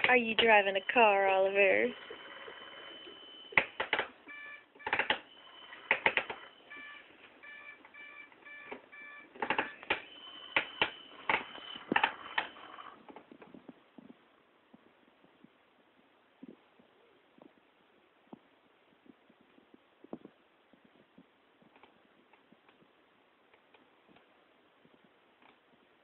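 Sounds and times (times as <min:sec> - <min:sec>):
thin steady high tone: 0:00.3 - 0:03.6
electronic toy beeps: 0:01.9 - 0:12.9.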